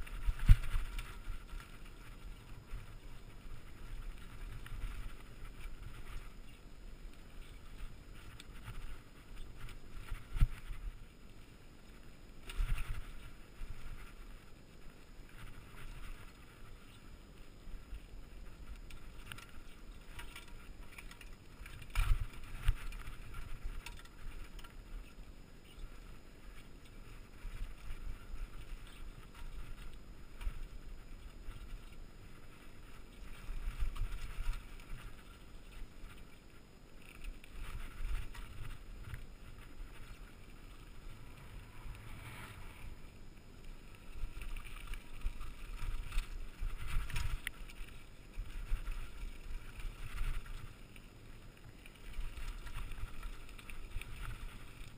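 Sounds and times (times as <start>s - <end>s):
bike rattling over rocks: 0.0s - 11.1s, 18.1s - 54.9s
wind rumble: 37.6s - 47.8s.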